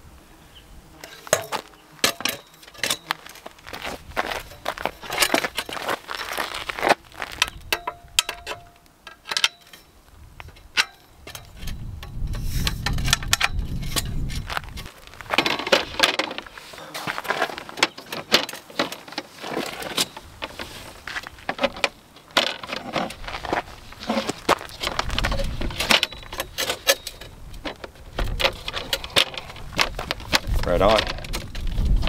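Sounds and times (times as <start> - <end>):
folding table clicking and knocking: 21.4 - 31.6.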